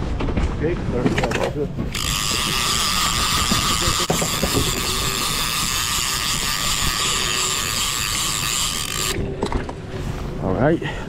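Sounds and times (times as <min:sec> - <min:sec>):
fishing reel ratcheting buzz: 0:01.9 - 0:09.2.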